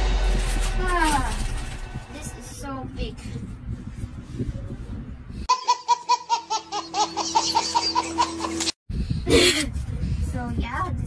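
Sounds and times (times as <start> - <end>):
loud burst of noise: 0.0 - 3.0
baby laughing: 5.5 - 8.8.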